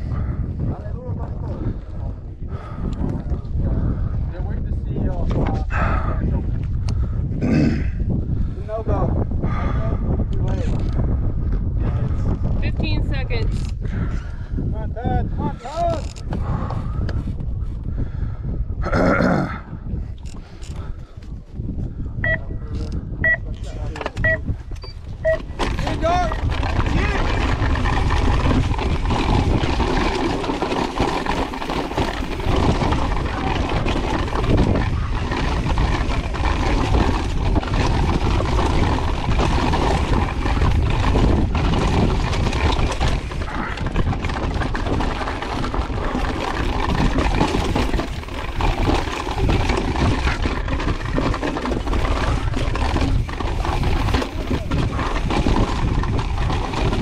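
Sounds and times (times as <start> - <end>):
bike clattering and rattling: 0.0 - 18.5, 20.0 - 57.0
wind rushing over microphone: 0.0 - 57.0
tyres crunching over gravel: 25.4 - 57.0.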